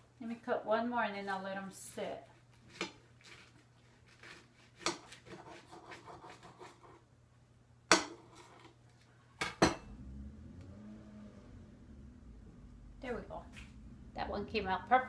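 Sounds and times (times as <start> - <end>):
bread knife sawing: 2.7 - 6.9.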